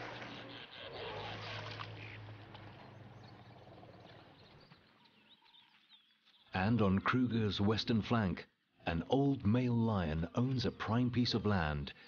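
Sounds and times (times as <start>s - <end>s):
water splashing and trickling: 0.0s - 4.4s.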